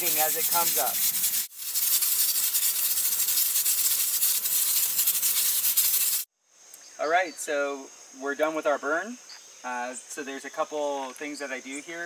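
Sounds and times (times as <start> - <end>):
stove fire hissing and crackling: 0.0 - 6.3
faint insect chirring: 0.0 - 12.0.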